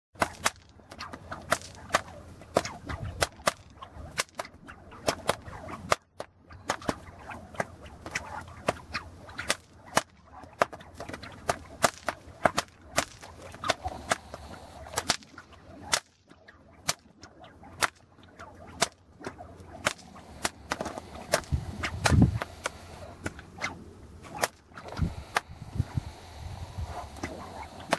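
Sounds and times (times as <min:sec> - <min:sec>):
whip cracks: 0:00.2 - 0:25.9, 0:26.9 - 0:27.9
wind rumble on microphone: 0:02.4 - 0:05.9, 0:20.0 - 0:27.9.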